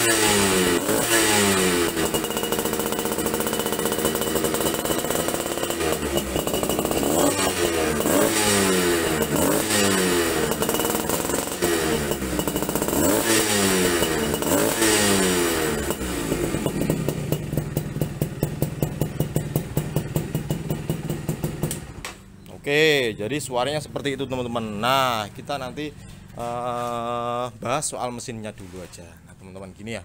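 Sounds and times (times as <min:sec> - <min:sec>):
two-stroke engine revving and idling: 0:00.0 - 0:22.4.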